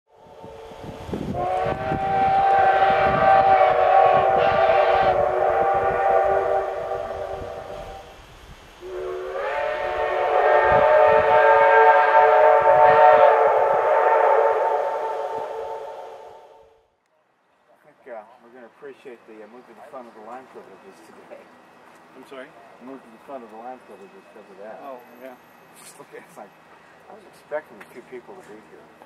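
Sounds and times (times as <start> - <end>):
chime train whistle blasts: 0.1 - 8.2, 8.8 - 16.8, 22.8 - 26.0.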